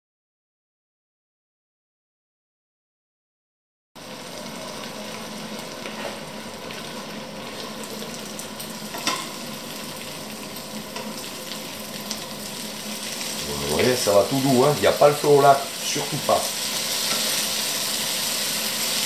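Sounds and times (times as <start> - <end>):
potatoes sizzling in oil: 4.0 - 19.0.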